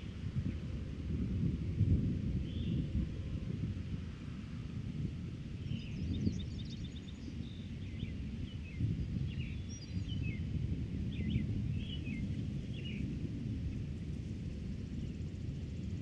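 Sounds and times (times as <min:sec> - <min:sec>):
wind buffeting microphone: 0:00.0 - 0:16.0
small birds chirping: 0:02.4 - 0:02.9, 0:05.6 - 0:10.5, 0:11.1 - 0:13.1.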